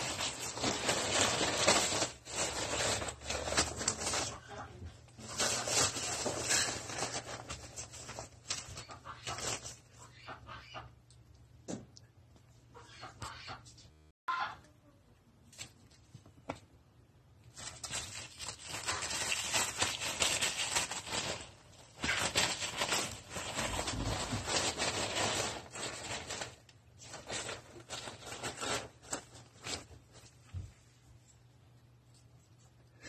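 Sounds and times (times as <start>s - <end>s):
tissue paper crinkling and rustling: 0.0s - 9.9s, 17.4s - 30.8s.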